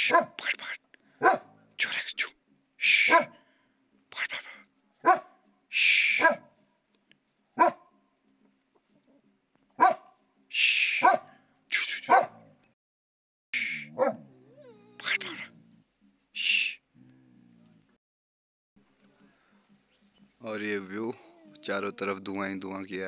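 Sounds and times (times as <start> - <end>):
dog barking: 0.0 - 0.4, 1.2 - 1.6, 3.1 - 3.4, 5.0 - 5.4, 6.2 - 6.5, 7.6 - 7.9, 9.8 - 10.2, 11.0 - 11.4, 12.1 - 12.5, 13.9 - 14.3.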